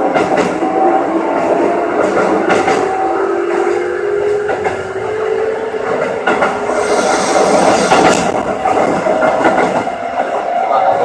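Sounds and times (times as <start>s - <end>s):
wheels clattering on rails: 1.3s - 5.1s, 5.8s - 11.0s
hiss: 6.6s - 8.4s.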